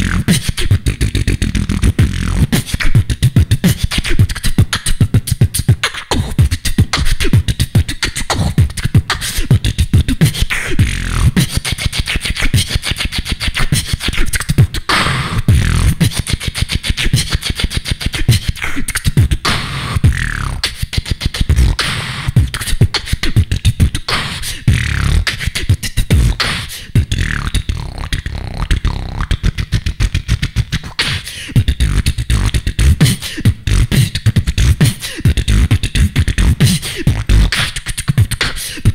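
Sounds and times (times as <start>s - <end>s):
deep bass: 0.0s - 10.2s, 10.8s - 11.4s, 15.2s - 16.1s, 19.2s - 20.7s, 21.5s - 22.6s, 23.4s - 24.1s, 24.7s - 25.4s, 26.0s - 30.9s, 31.6s - 37.6s
gliding pitched mouth sounds: 0.0s - 38.9s
person beatboxing into microphone: 0.0s - 38.9s.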